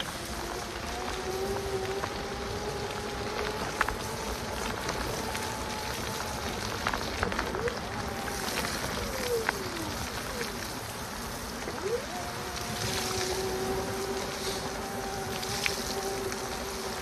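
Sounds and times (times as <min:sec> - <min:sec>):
electric bike motor whine: 0:00.0 - 0:17.0
rain and tyres on wet path: 0:00.0 - 0:17.0.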